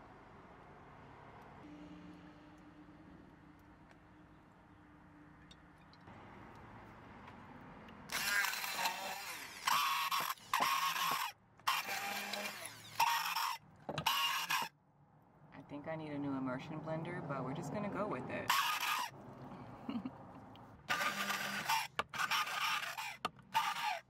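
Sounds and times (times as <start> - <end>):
immersion blender chopping: 8.1 - 14.7, 20.9 - 24.0.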